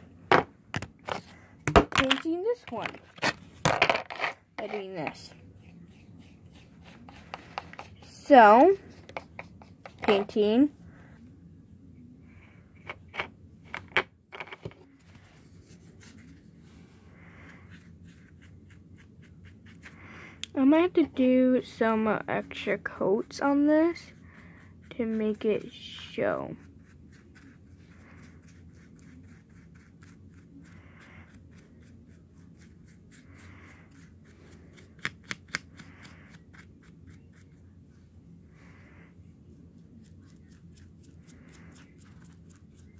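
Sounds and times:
paintbrush tapping and scraping: 4.0 - 10.5
soft brush strokes: 4.6 - 12.6, 14.8 - 35.0, 35.8 - 42.9.

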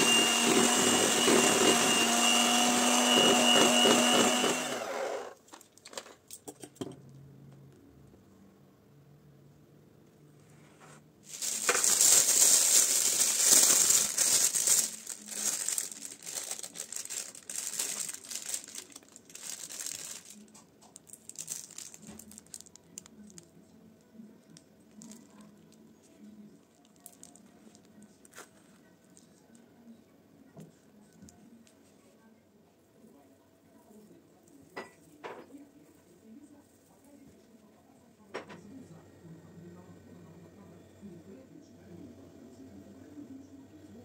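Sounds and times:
plastic piping bag crinkling: 0.0 - 4.7, 11.2 - 23.6, 24.5 - 25.8, 26.6 - 29.4.

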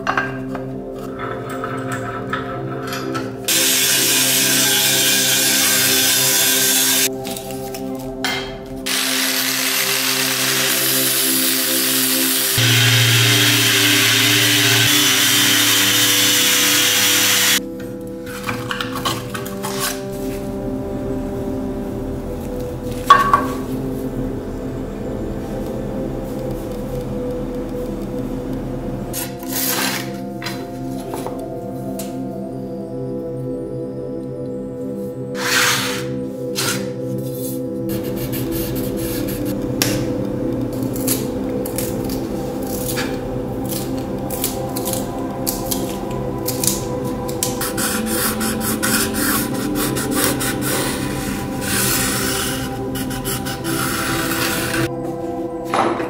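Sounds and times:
soft music with held notes: 0.0 - 56.0
pencil sharpener shaving: 8.9 - 17.6, 35.4 - 36.9, 47.6 - 54.9.

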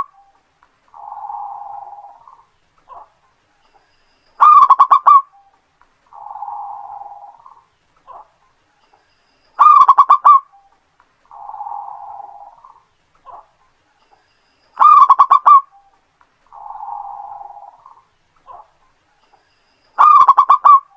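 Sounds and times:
dove cooing and trilling: 0.0 - 3.1, 4.4 - 5.5, 6.1 - 8.3, 9.6 - 10.7, 11.3 - 13.5, 14.8 - 18.7, 20.0 - 20.9.

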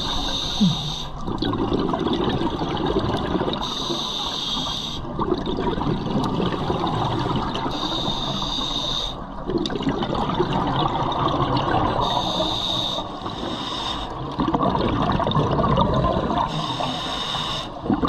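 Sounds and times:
diver inhaling through regulator: 0.0 - 1.2, 7.7 - 9.2, 12.0 - 14.2, 16.5 - 17.8
exhaled bubbles burbling: 0.0 - 3.6, 5.0 - 7.7, 9.4 - 12.2, 14.2 - 16.6, 17.8 - 18.0.

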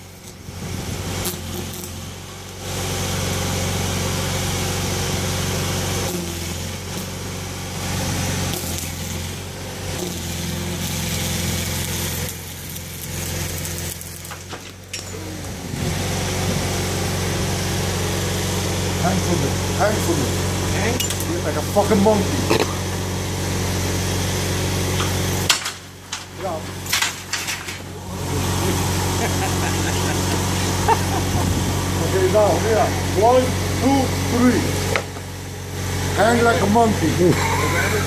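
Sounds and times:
welding arc crackling hiss: 0.0 - 38.0
steady low hum: 24.4 - 38.0.

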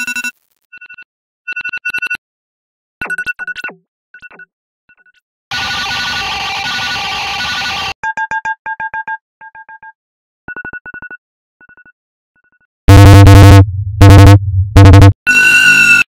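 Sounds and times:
distorted bass-heavy alarm blasts: 12.9 - 16.0
rapid alarm beeps: 12.9 - 16.0.

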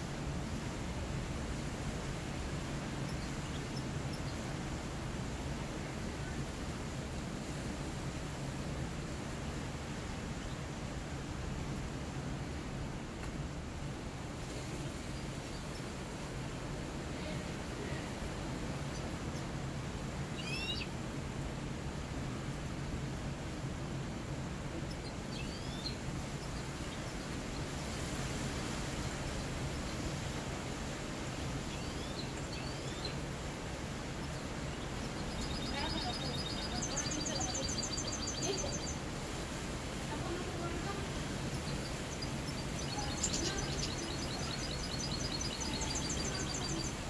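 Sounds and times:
low background noise: 0.0 - 47.0
finch chirping: 20.4 - 20.9, 34.3 - 39.0, 41.3 - 47.0.

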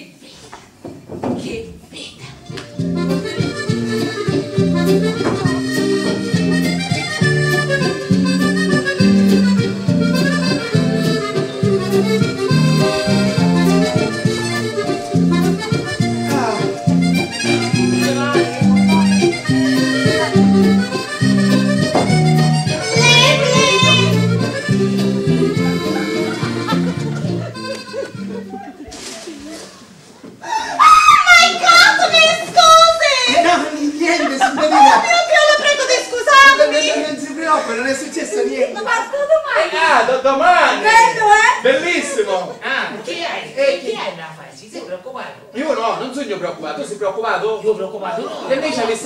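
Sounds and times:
lively instrumental music: 2.4 - 29.1.

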